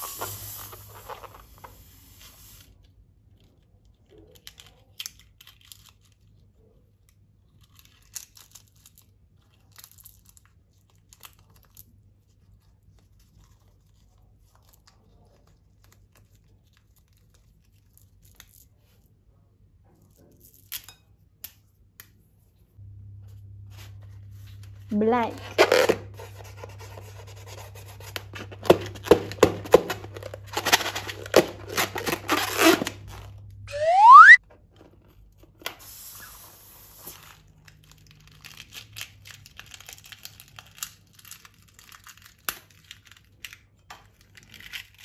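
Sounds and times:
plastic crinkling: 0:27.8 - 0:33.4, 0:37.2 - 0:45.0
slime squeezed by hand: 0:33.7 - 0:34.4
sticky crackles and clicks: 0:37.4 - 0:45.0.

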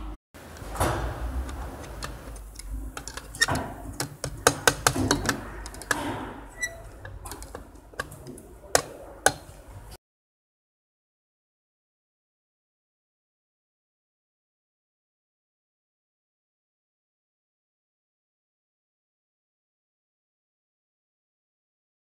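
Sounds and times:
metal tool clicking on clutch disc: 0:01.5 - 0:06.0.

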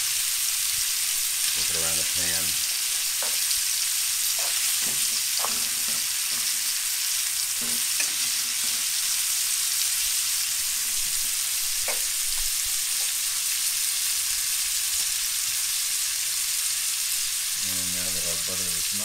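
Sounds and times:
meat sizzling in a skillet: 0:00.0 - 0:19.0
utensil scraping a pan: 0:04.2 - 0:06.8, 0:07.6 - 0:09.2.

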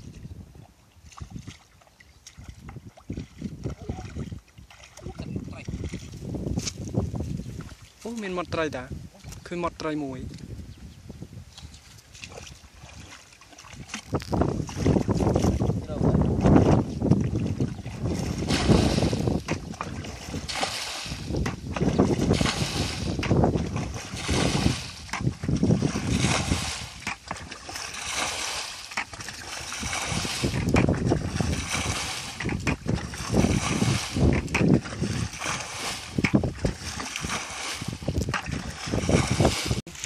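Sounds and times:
water sloshing around legs: 0:00.0 - 0:06.8, 0:11.7 - 0:40.0
bucket scooping and pouring water: 0:12.1 - 0:40.0.

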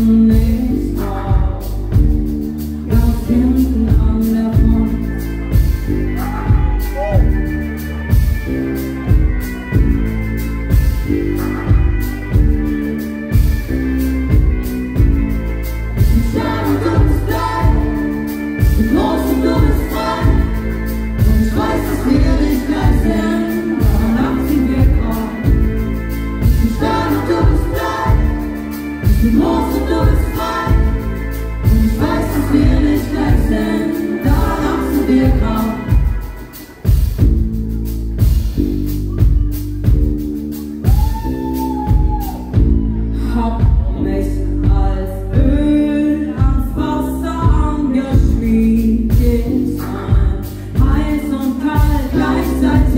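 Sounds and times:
woman singing: 0:00.0 - 0:02.3, 0:02.9 - 0:07.4, 0:16.0 - 0:36.5, 0:43.0 - 0:52.9
live band music: 0:00.0 - 0:52.9.

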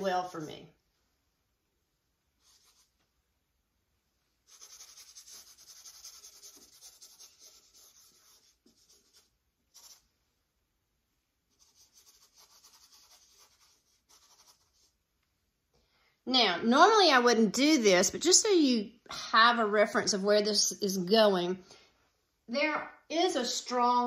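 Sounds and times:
paintbrush scrubbing on panel: 0:02.4 - 0:03.1, 0:04.4 - 0:10.1, 0:11.5 - 0:15.0.

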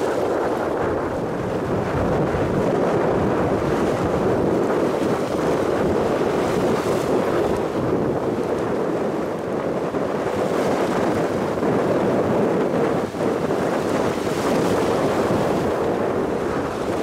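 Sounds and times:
sea water washing along hull: 0:00.0 - 0:17.0
wind on microphone: 0:00.0 - 0:17.0.

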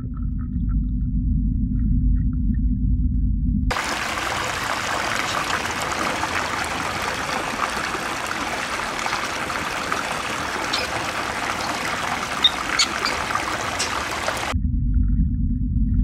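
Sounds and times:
water trickling into pool: 0:03.7 - 0:14.6.

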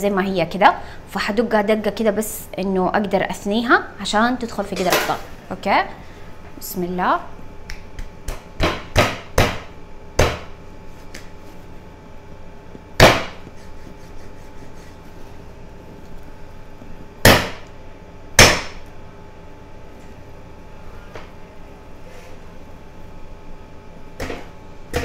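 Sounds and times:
cleaver chopping bones: 0:08.3 - 0:10.5, 0:13.0 - 0:13.4, 0:17.2 - 0:17.6, 0:18.4 - 0:18.8.

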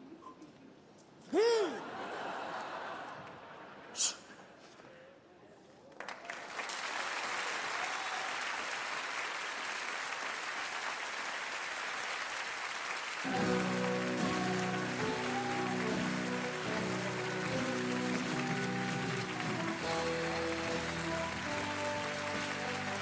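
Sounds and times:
audience applauding: 0:05.9 - 0:23.0
music with held notes: 0:13.3 - 0:23.0.

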